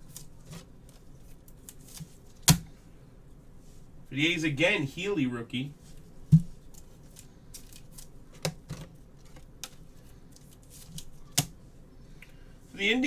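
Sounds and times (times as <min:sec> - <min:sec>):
cards rustling: 0:05.9 - 0:11.5.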